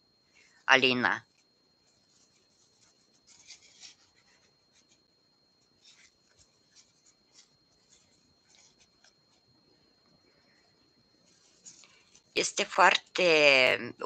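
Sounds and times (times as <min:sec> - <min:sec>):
yarn rustling with crochet hook: 0:01.2 - 0:09.4, 0:11.2 - 0:12.4.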